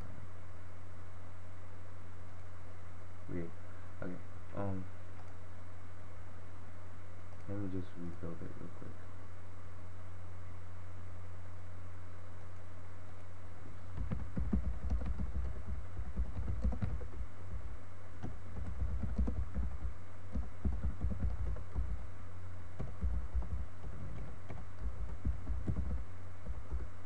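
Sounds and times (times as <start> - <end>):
low hum: 0.0 - 27.0
typing on computer keyboard: 13.9 - 17.2, 18.2 - 22.0, 22.8 - 26.9.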